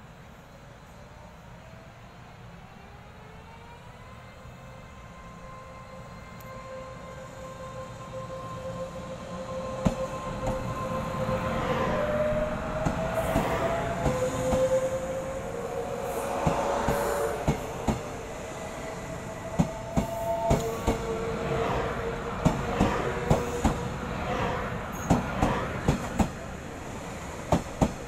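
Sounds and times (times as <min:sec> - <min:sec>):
train motor whine: 0:04.3 - 0:24.0
train cars rumbling: 0:07.0 - 0:28.0.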